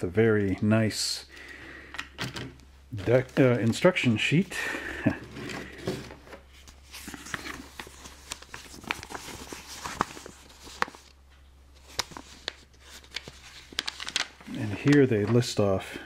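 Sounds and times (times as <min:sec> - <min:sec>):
paper sheet rustling and crackling: 0:05.0 - 0:11.2, 0:11.8 - 0:15.6.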